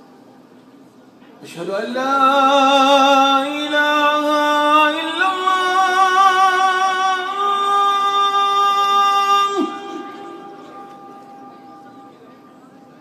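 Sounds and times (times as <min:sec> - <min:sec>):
person singing with vibrato: 0:01.6 - 0:12.7.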